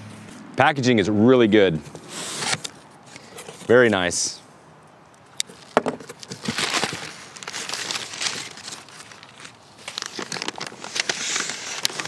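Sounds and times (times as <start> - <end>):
cardboard rubbing: 1.9 - 3.8
packing paper crumpling: 5.5 - 12.0.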